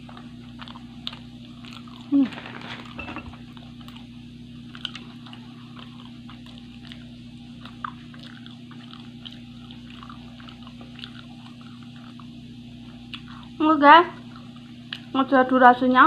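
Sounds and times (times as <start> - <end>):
chewing with crisp crackles: 0.0 - 15.3
steady low hum: 0.0 - 16.0.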